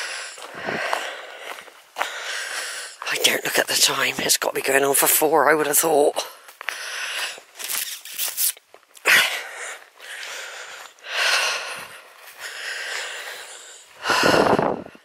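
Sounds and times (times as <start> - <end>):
person breathing hard: 0.0 - 3.4, 6.2 - 7.6, 9.0 - 15.0.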